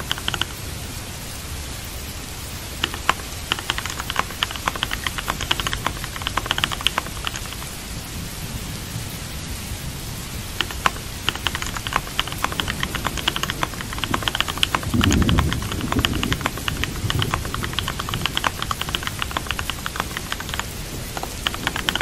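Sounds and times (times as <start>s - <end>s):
computer keyboard typing: 0.0s - 0.6s, 2.8s - 7.8s, 10.5s - 22.0s
steady rain: 0.0s - 22.0s.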